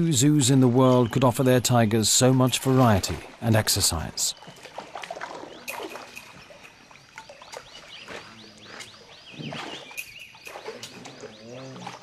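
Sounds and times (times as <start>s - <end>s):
bird chirping: 4.2s - 12.0s.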